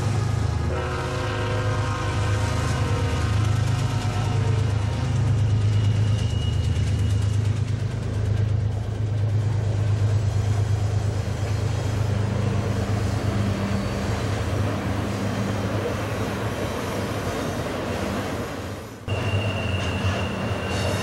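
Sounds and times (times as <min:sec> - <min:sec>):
diesel locomotive drone: 0:00.0 - 0:21.0
train wheels rumbling on rail: 0:00.0 - 0:21.0
high-pitched wheel squeal: 0:12.4 - 0:17.0, 0:19.1 - 0:21.0.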